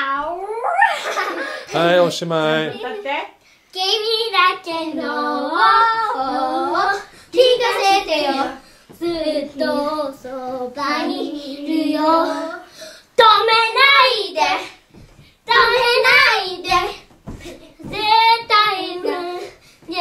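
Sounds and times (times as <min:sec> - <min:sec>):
children singing: 0:04.7 - 0:12.7.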